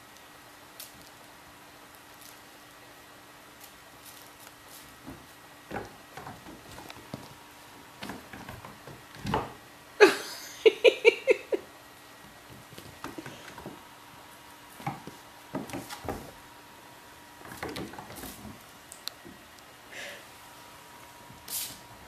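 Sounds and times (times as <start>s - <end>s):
kitten paws pattering on floor: 3.6s - 7.4s.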